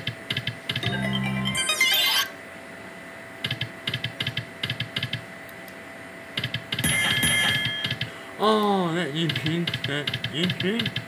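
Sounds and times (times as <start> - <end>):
slot machine reels clicking: 0.4 - 2.4
win jingle: 0.8 - 2.3
faint electronic tone: 0.8 - 2.4.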